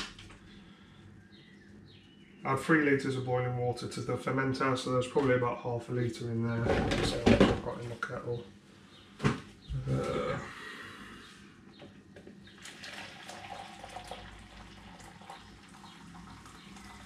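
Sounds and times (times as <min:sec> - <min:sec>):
water pouring into plastic jug: 0:12.5 - 0:17.0.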